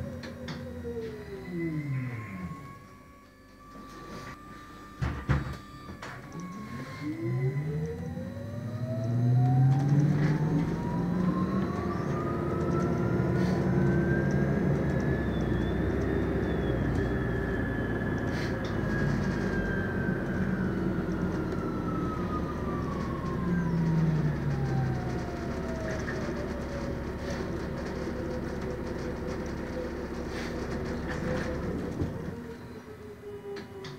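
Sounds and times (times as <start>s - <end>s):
electric drive whine: 0.0s - 33.9s
low engine drone: 0.0s - 33.9s
road noise: 8.0s - 33.1s.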